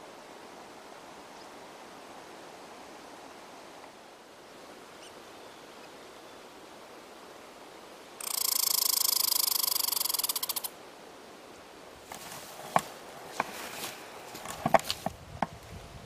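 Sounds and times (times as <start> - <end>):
squirrel chattering rattle: 8.2 - 10.7.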